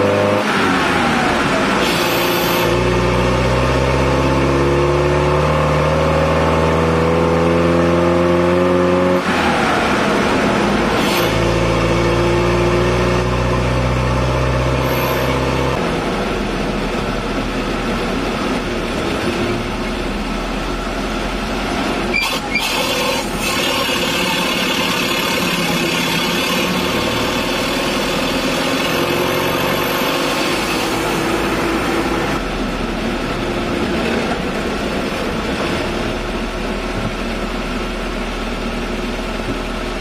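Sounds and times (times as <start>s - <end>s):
road noise: 0.0s - 40.0s
van engine running: 15.7s - 40.0s.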